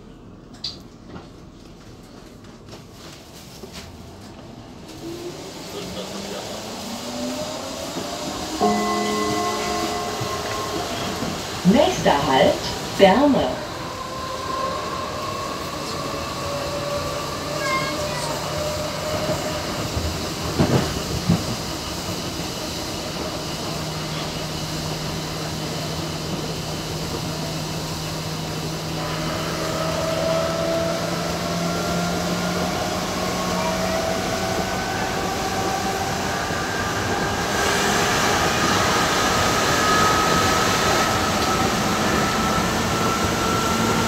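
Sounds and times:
train running noise: 0.0s - 44.0s
train motor whine: 6.3s - 21.4s.

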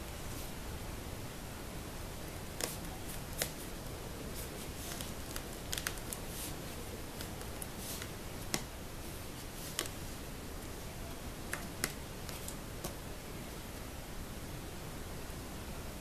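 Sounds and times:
steady background hiss: 0.0s - 16.0s
hands clicking and tapping box: 2.6s - 3.6s, 4.9s - 6.3s, 7.2s - 8.7s, 11.5s - 13.0s.

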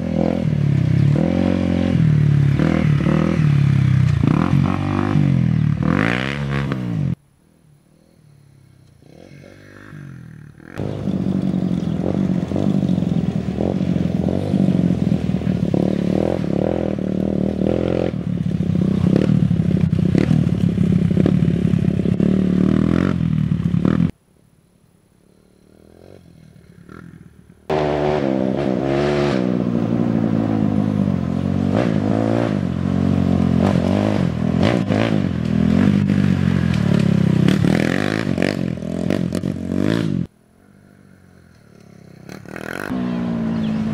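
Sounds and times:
dirt bike engine revving: 0.0s - 7.2s, 9.0s - 24.2s, 25.5s - 40.3s, 41.7s - 43.9s.

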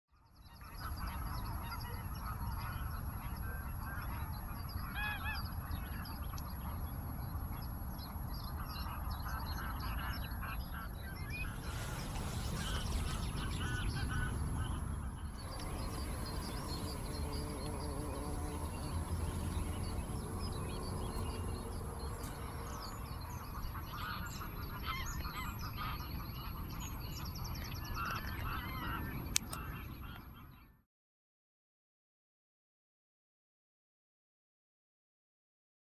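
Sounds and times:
wind rumble on microphone: 1.2s - 30.0s
waterfowl calling: 9.4s - 26.6s
geese honking: 11.4s - 26.1s.

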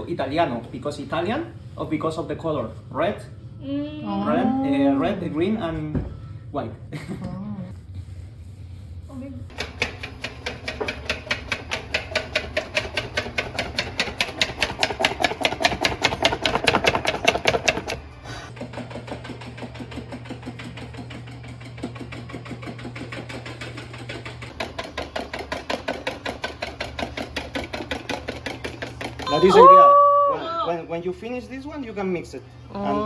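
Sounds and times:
whisk beating against bowl: 9.5s - 29.5s.

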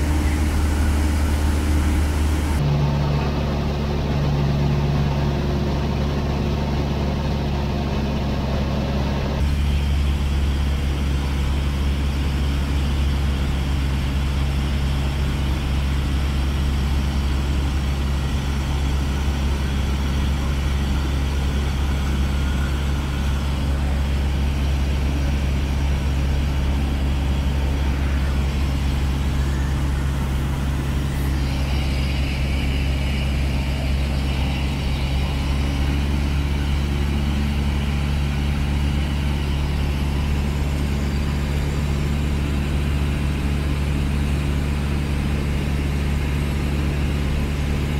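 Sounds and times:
light aircraft engine droning: 0.0s - 47.9s.

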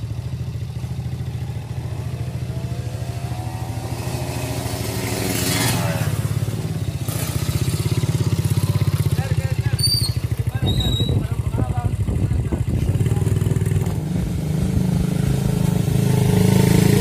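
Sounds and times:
motorcycle engine idling: 0.0s - 3.9s, 6.1s - 14.8s
motorcycle engine revving: 0.0s - 17.0s.

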